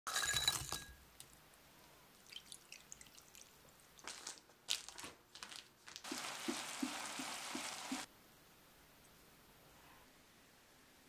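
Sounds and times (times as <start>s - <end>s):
beef sizzling in a frying pan: 6.0s - 8.1s.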